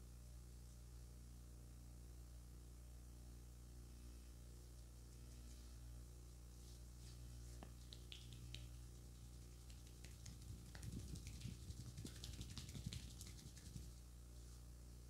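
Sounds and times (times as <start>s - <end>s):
low electrical hum: 0.0s - 15.0s
hands patting and rubbing face: 7.0s - 14.0s.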